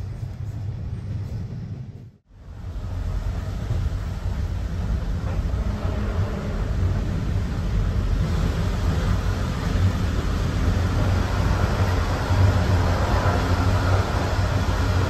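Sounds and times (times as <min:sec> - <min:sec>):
train coach rumbling: 0:00.0 - 0:15.0.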